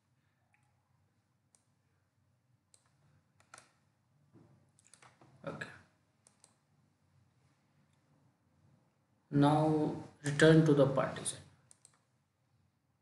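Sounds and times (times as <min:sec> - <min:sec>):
computer mouse clicks: 0:01.5 - 0:01.7, 0:02.7 - 0:03.8, 0:04.7 - 0:05.3, 0:06.2 - 0:06.7, 0:11.6 - 0:12.1.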